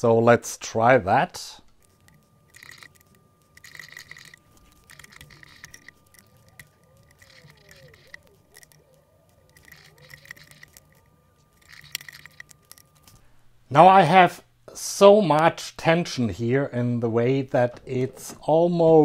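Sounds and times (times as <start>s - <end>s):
wrench clicks and scrapes: 1.8s - 8.9s, 9.5s - 13.2s.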